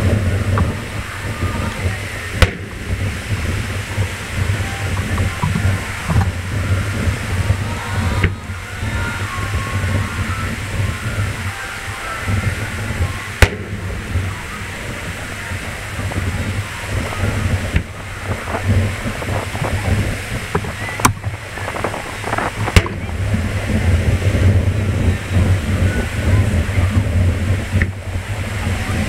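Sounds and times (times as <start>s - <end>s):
low rumble: 0.0s - 29.0s
firework shells bursting: 2.3s - 7.3s, 13.4s - 14.3s, 15.6s - 24.6s.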